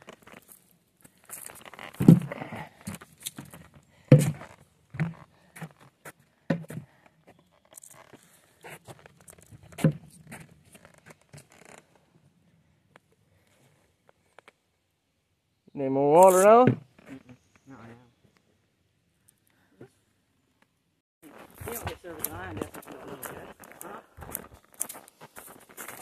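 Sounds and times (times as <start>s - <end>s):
footsteps on forest trail: 0.0s - 11.8s, 21.2s - 26.0s.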